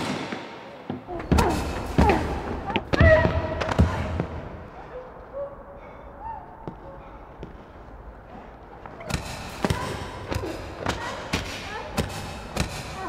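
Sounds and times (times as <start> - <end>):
heavy blows on a body: 1.0 - 4.8.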